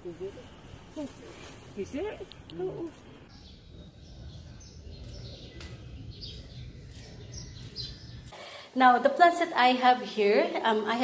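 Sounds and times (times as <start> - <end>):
people talking: 0.0 - 3.1, 8.8 - 11.0
low outdoor rumble: 0.0 - 8.3.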